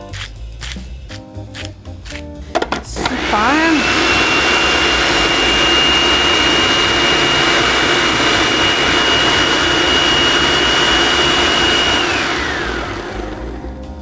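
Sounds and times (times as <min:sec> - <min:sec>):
food processor motor whining: 0:03.0 - 0:14.0.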